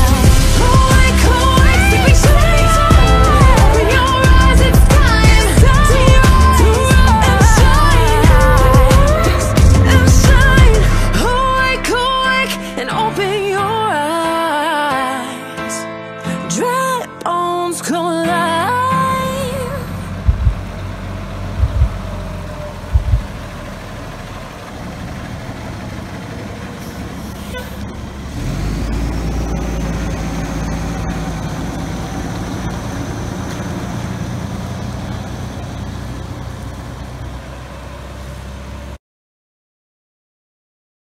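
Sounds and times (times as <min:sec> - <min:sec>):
fire engine passing: 0:00.0 - 0:12.1, 0:19.2 - 0:39.0
low thumps: 0:20.2 - 0:20.8, 0:21.4 - 0:23.5.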